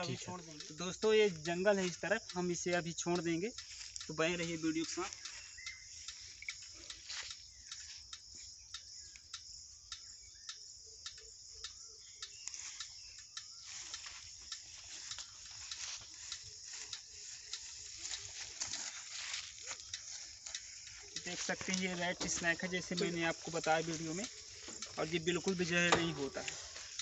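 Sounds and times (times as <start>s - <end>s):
insect chorus: 0.0s - 27.0s.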